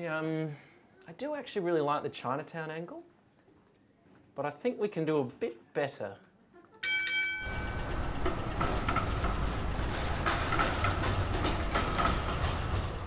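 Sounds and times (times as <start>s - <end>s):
rail vehicle rumbling: 7.4s - 13.0s
street noise: 7.4s - 13.0s
wheels clattering over track: 7.4s - 13.0s.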